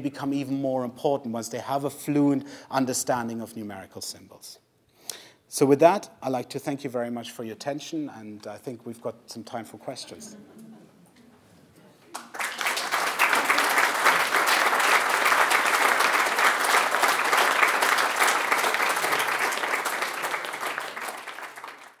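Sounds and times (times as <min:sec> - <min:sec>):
audience applauding: 0:12.1 - 0:22.0.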